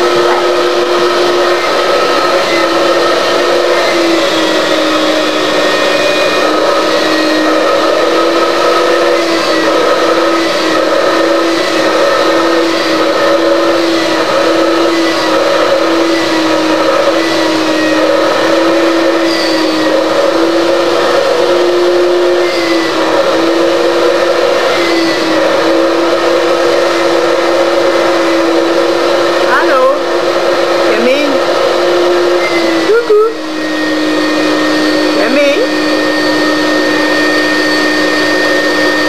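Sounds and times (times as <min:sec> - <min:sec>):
loud motor-like hum: 0:00.0 - 0:18.6.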